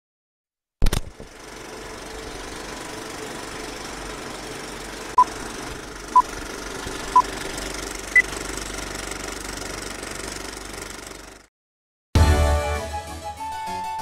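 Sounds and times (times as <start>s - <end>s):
film projector clatter and hiss: 0.8s - 11.5s.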